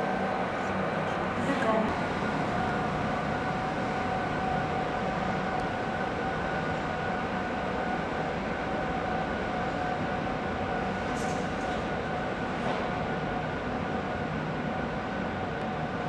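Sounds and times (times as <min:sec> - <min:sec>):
electric locomotive high whine: 0:00.0 - 0:16.0
train rumbling on track: 0:00.0 - 0:16.0.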